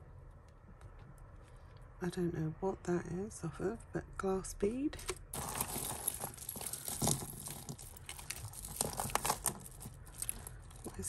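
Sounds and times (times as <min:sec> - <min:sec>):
beads and chains clicking: 0:05.3 - 0:11.0.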